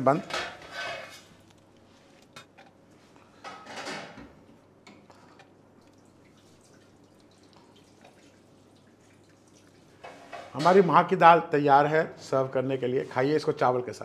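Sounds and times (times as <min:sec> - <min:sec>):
drips: 0:04.9 - 0:10.6
thick liquid splashing: 0:05.1 - 0:10.4.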